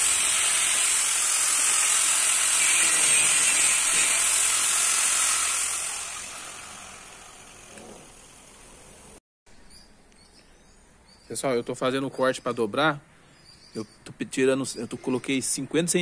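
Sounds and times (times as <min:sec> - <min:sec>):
angle grinder cutting steel: 0:00.0 - 0:08.7.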